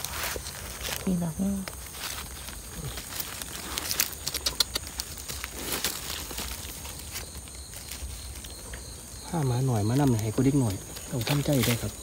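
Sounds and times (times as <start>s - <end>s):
twigs snapping: 0.0s - 8.1s
dry leaves crackling and rustling: 0.0s - 12.0s.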